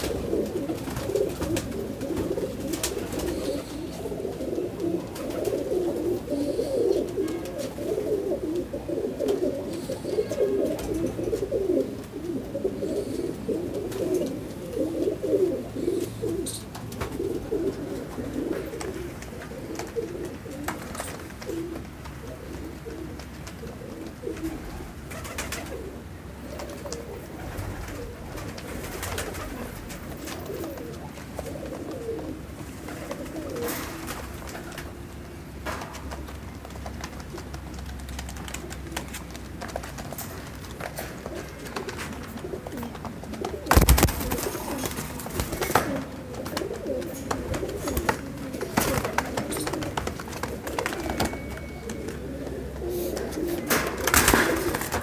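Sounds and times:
pigeons cooing: 0.0 - 55.0.

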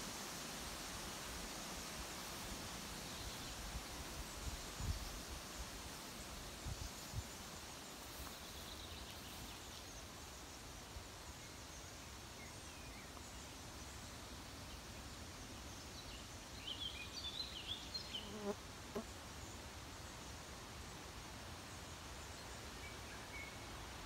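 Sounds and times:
faint steady hiss: 0.0 - 24.0
insects buzzing: 17.2 - 20.4.

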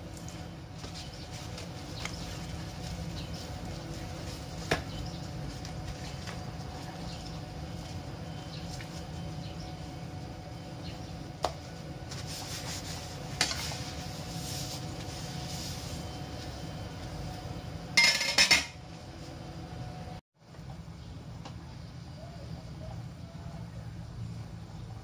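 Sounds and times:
paper towels rustling: 0.0 - 10.0, 11.6 - 17.5
steady low hum: 0.0 - 25.0.

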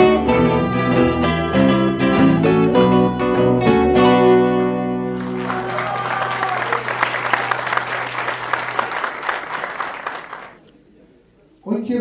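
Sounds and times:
audience applause: 5.2 - 10.6.

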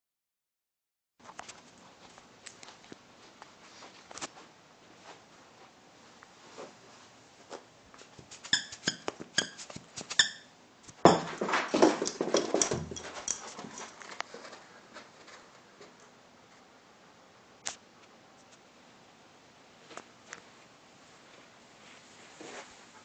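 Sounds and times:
dog squeaking and whining: 8.5 - 10.5
loud scuffling and rustling: 10.9 - 15.6.

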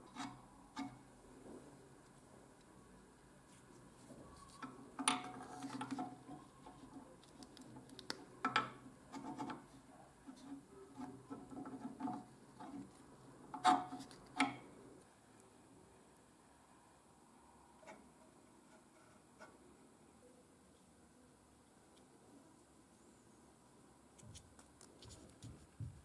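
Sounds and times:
handling and rubbing of parts: 0.0 - 15.0.

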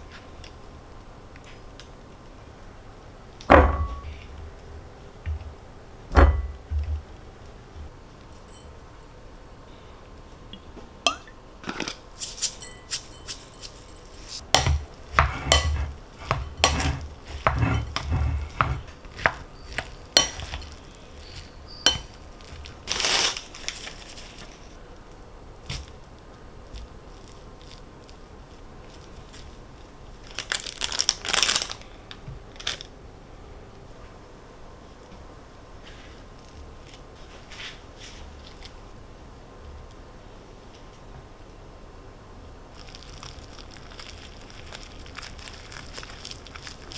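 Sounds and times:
dishes and cutlery clinking: 11.1 - 20.8, 21.8 - 22.2.

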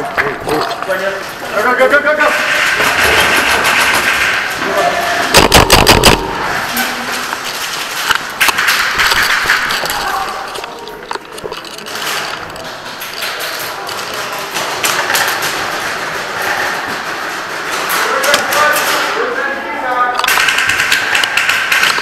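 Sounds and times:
game noise in large hall: 0.0 - 22.0
airsoft gunfire cracks: 5.3 - 6.6.

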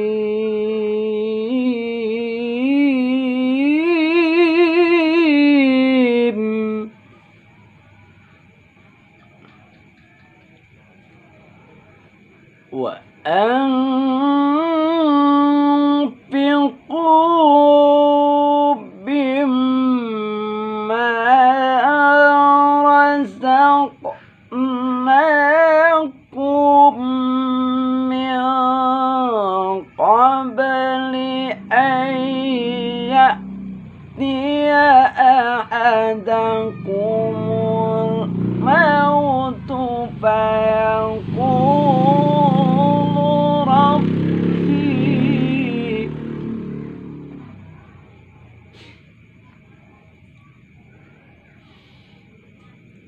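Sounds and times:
man reciting melodically: 0.0 - 7.0, 12.6 - 46.4.

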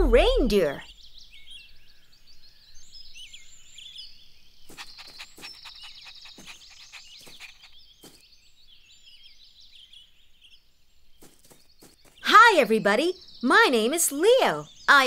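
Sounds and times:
songbirds chirping: 0.0 - 15.0
bird trill: 0.4 - 10.6.

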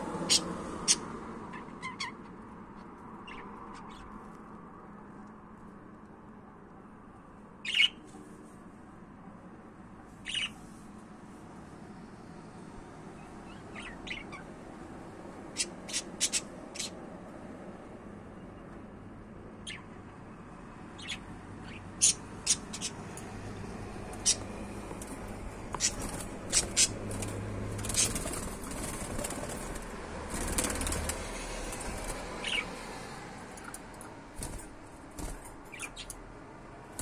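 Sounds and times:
budgerigars chirping and clicking: 0.2 - 2.2, 3.2 - 4.2, 7.6 - 8.0, 10.3 - 10.6, 13.2 - 14.5, 15.5 - 17.0, 19.6 - 19.9, 21.0 - 23.3, 24.1 - 32.8, 33.6 - 36.2.

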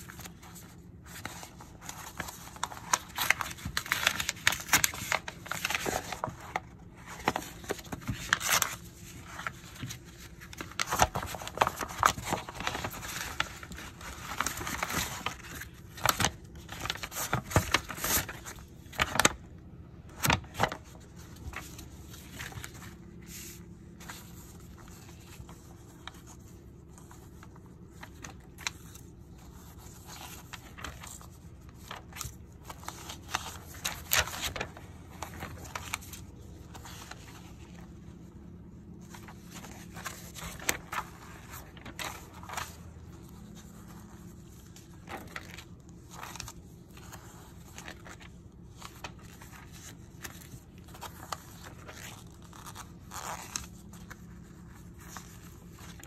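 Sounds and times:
paper rustling and crinkling: 0.0 - 56.0.

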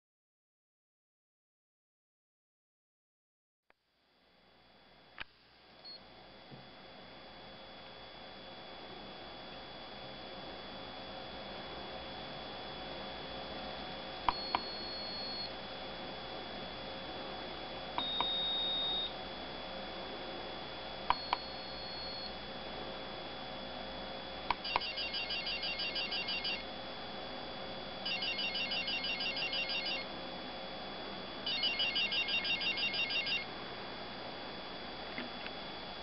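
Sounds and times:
piezo buzzer beeping: 14.3 - 15.5, 18.0 - 19.2, 21.1 - 22.4, 24.5 - 26.7, 28.0 - 30.1, 31.4 - 33.5.

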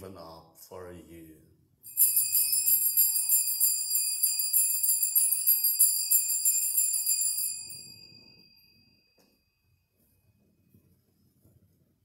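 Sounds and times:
altar bells jingling: 1.9 - 9.6.

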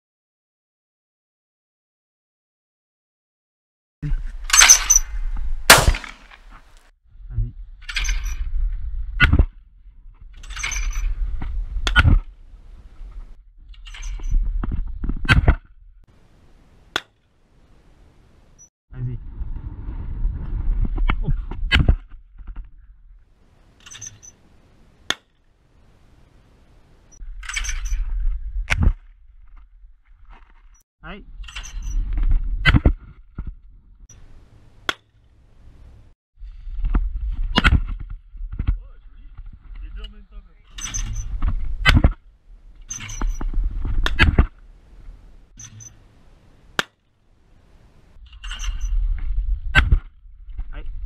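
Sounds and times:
smaller gunshot report: 5.7 - 6.4
shotgun shot: 5.7 - 6.5
sharp crack: 5.7 - 6.8, 46.7 - 47.1.

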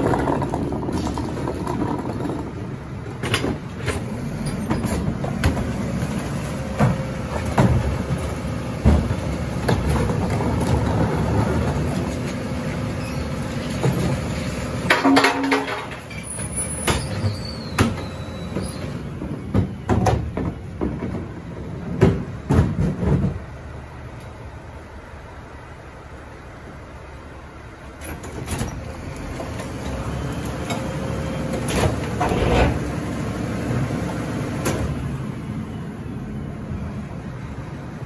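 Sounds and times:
diesel engine running: 0.0 - 38.0
metal clangs and bangs: 14.8 - 18.1.

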